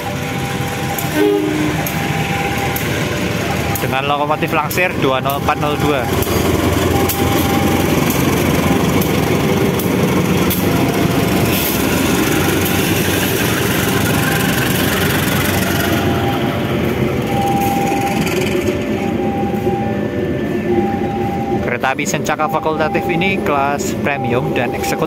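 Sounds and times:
diesel locomotive engine running: 0.0 - 25.0
train coaches rolling on rails: 0.0 - 25.0.

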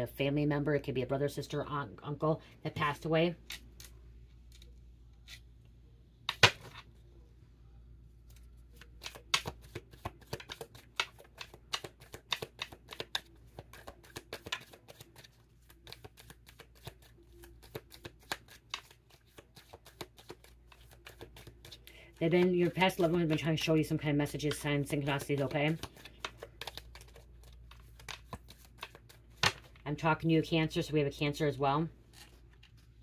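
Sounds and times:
cards being shuffled: 8.2 - 29.8, 32.1 - 33.0.

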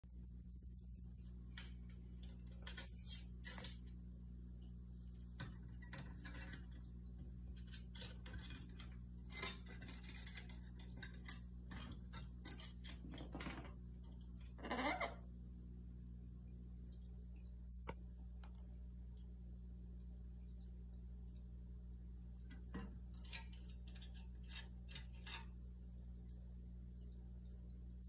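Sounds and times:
steady low hum: 0.0 - 28.0
parrot claws tapping on metal grille: 5.4 - 13.7.

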